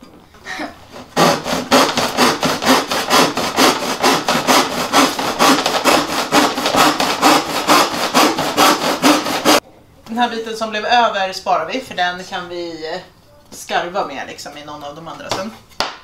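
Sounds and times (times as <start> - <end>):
handsaw cutting wooden panel: 0.9 - 9.6.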